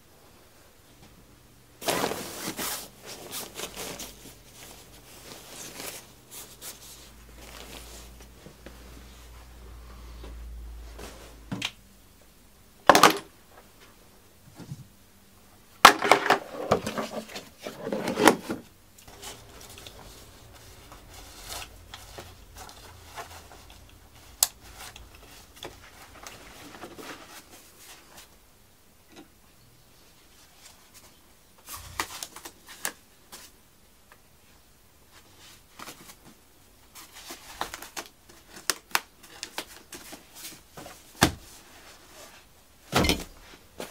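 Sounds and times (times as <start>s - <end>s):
nylon pouches rustling: 1.8s - 8.4s.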